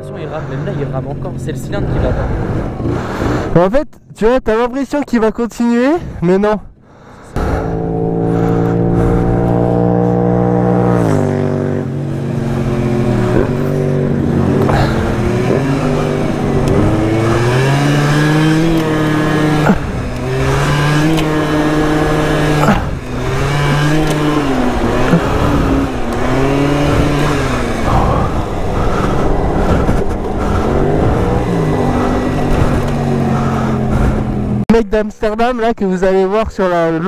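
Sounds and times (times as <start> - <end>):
man talking: 0.0 - 2.3, 34.7 - 37.0
two-stroke scooter engine revving: 7.4 - 34.6.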